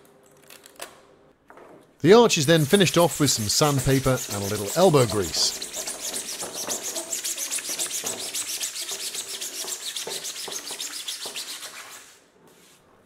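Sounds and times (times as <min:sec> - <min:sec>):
sandpaper rubbing plastic: 0:02.4 - 0:12.3.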